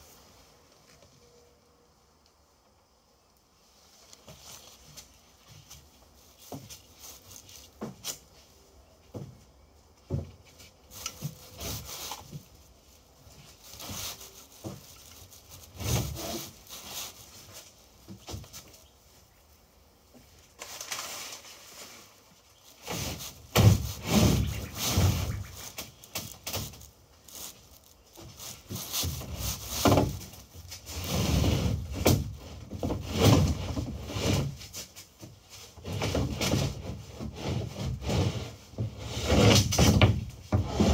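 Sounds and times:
wood scraping against wood: 10.1s - 18.8s, 20.1s - 40.9s.

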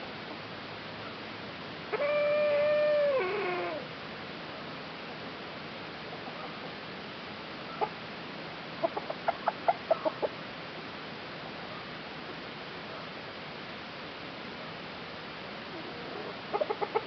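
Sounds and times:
chicken clucking: 8.8s - 10.4s, 16.5s - 17.0s.

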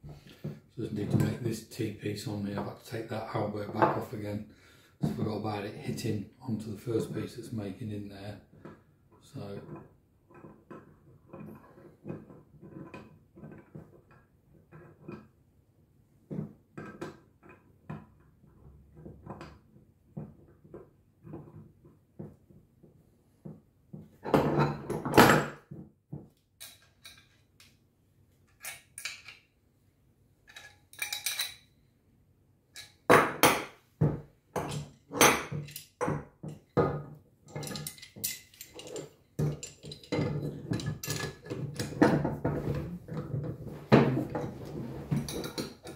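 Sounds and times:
metal fittings clinking on workbench: 26.6s - 27.7s, 28.5s - 29.4s, 30.5s - 31.7s, 32.8s - 33.1s, 34.6s - 36.7s, 37.5s - 42.1s
tools clattering: 26.6s - 27.7s, 28.4s - 29.5s, 30.4s - 31.7s, 32.8s - 33.7s, 34.6s - 36.8s, 37.5s - 43.6s, 44.2s - 45.9s.

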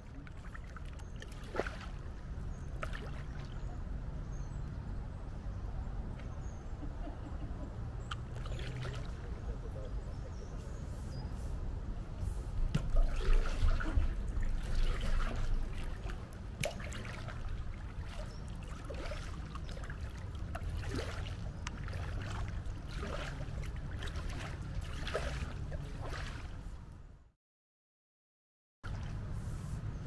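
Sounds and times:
paddle dipping in water: 0.0s - 3.8s, 8.0s - 9.5s, 12.3s - 26.8s, 28.8s - 29.8s
water dripping off paddle: 12.7s - 26.4s.

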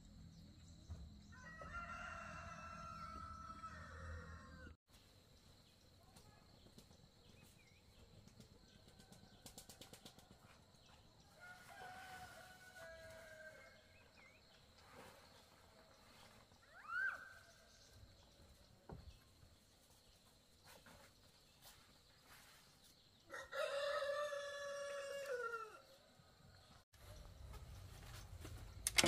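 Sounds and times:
rural outdoor ambience: 0.0s - 29.0s
rooster crowing: 1.3s - 4.8s, 11.4s - 13.8s, 23.3s - 25.9s.

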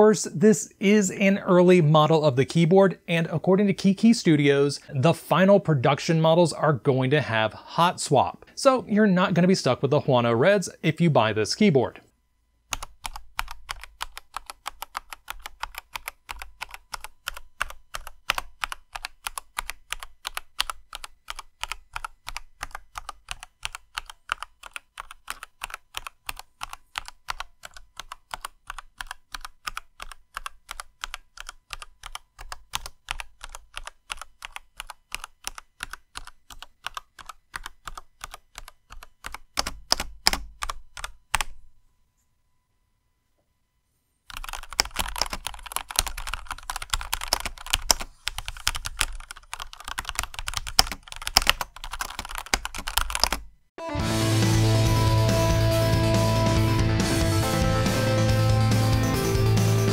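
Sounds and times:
mechanical keyboard typing: 12.7s - 41.6s, 44.3s - 53.5s.

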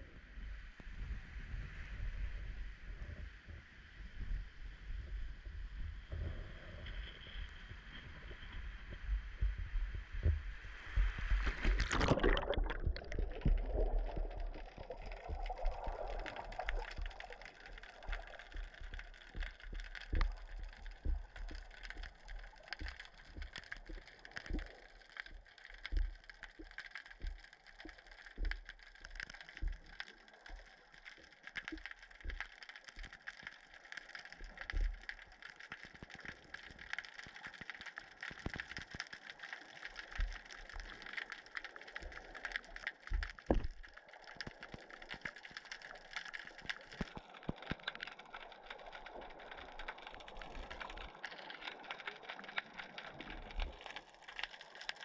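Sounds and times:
muffled underwater rush: 0.0s - 26.6s, 39.6s - 55.0s
low underwater thumps: 8.7s - 17.3s
splash into water: 11.1s - 14.3s.

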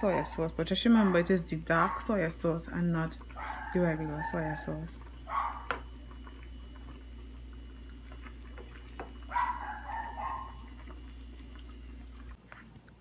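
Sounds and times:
spoon stirring soup in a pot: 5.4s - 11.6s.

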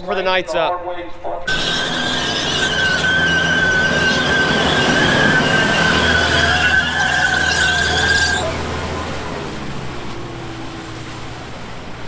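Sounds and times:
high squeal: 1.5s - 9.2s
tractor engine hum: 1.5s - 12.0s.

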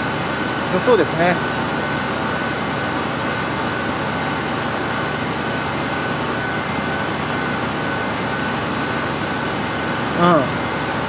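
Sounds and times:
machine hum and hiss: 0.0s - 11.0s
faint steady high tone: 10.1s - 10.7s.

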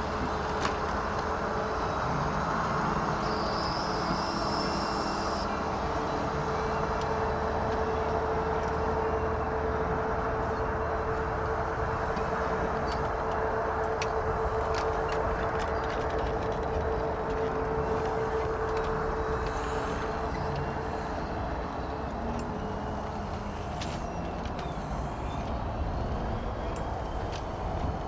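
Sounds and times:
jet engines rumbling and whining: 0.0s - 28.0s.

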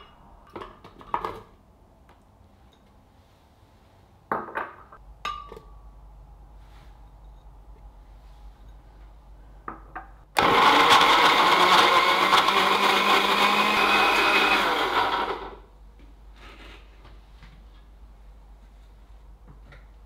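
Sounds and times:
blender running: 10.4s - 15.6s.

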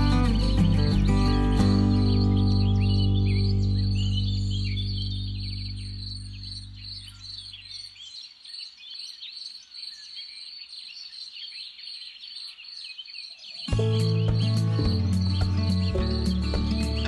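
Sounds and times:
guitar music: 0.0s - 7.0s, 13.7s - 17.0s
small birds chirping: 0.0s - 17.0s
insect trill: 13.7s - 17.0s.

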